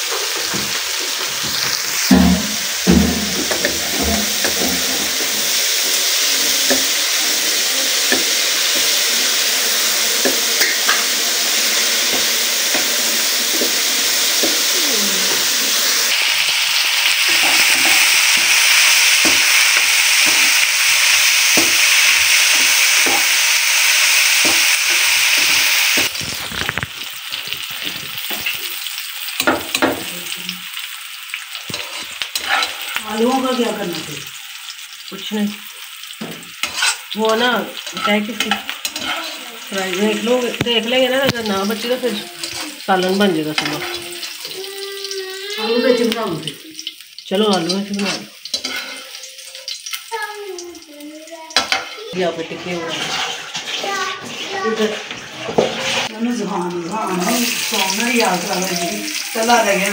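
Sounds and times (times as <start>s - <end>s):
vegetables sizzling in hot oil: 0.0s - 59.9s
wooden spatula scraping a pan: 0.1s - 16.2s, 31.7s - 33.8s, 36.2s - 44.0s, 47.8s - 49.2s, 51.7s - 56.2s.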